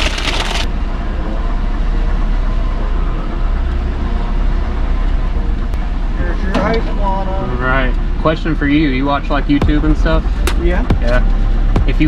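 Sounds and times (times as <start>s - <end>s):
paper bag rustling: 0.0s - 0.7s
car engine idling: 0.0s - 12.0s.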